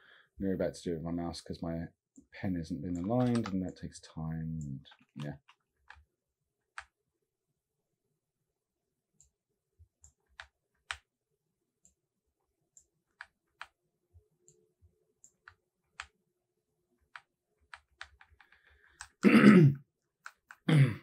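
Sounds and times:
mouse and keyboard clicks: 2.9 - 3.7, 17.1 - 19.2, 20.2 - 20.6.

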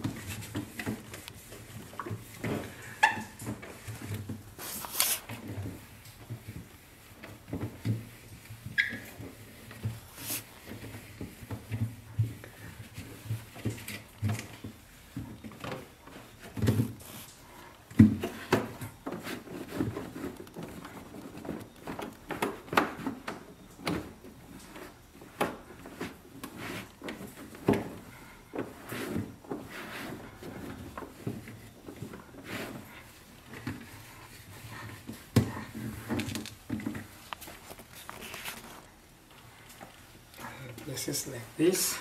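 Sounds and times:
cloth wiping plastic: 0.0 - 14.1, 16.1 - 17.7.

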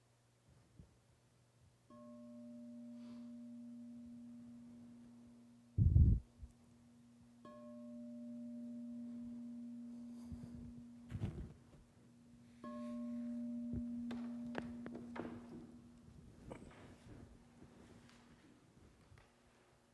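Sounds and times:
bell-like ringing tone: 1.9 - 5.8, 6.8 - 11.4, 12.1 - 16.0.

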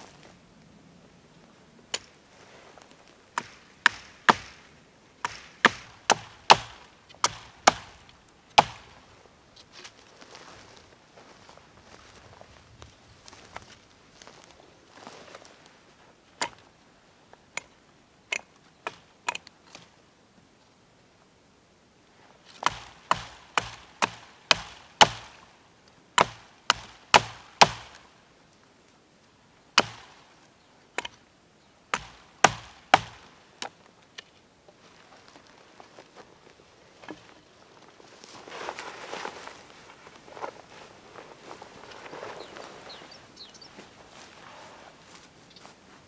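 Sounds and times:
hatchet chopping a branch: 3.4 - 9.0, 22.6 - 25.5, 26.2 - 28.1, 29.8 - 30.2, 31.9 - 33.3.

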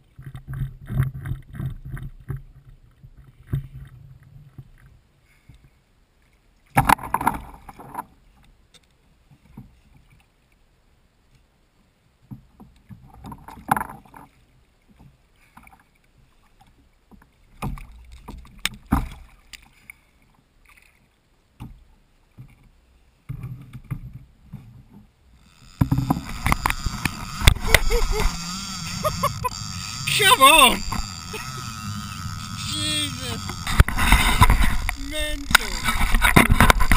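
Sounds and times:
fishing reel clutch buzzing: 25.3 - 36.9.

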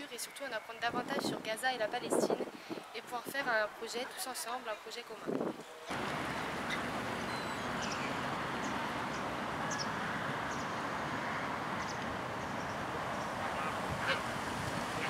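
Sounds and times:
steady rush of noise: 5.3 - 15.0.

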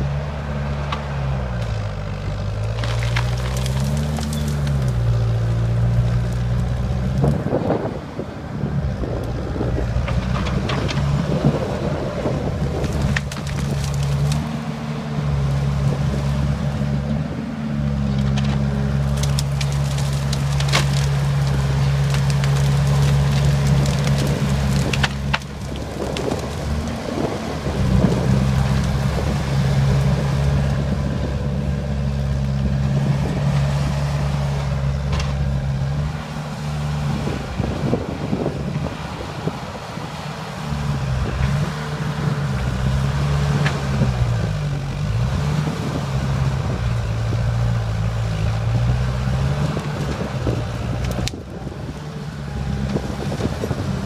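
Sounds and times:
bulldozer diesel engine: 0.0 - 54.0
sharp cracks: 18.4 - 27.1.

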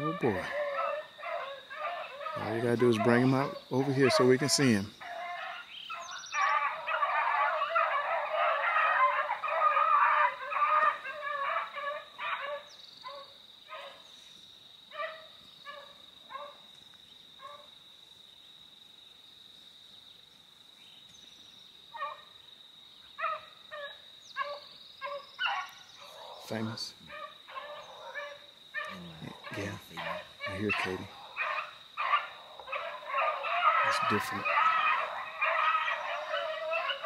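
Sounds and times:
dog barks: 0.0 - 5.6, 6.4 - 14.0, 14.9 - 16.6, 17.4 - 17.7, 23.2 - 37.0
hounds baying: 0.0 - 14.0, 14.9 - 16.6, 22.0 - 22.3, 23.2 - 37.0.

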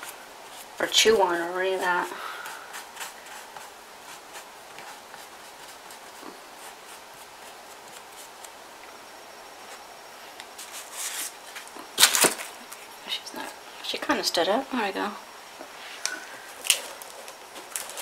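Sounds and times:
hands rustling newspaper strips: 10.5 - 12.9, 16.0 - 18.0.

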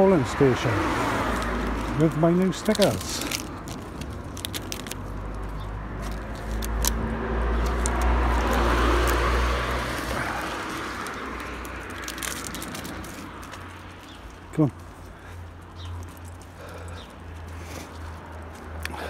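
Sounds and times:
car passing: 0.0 - 19.0.

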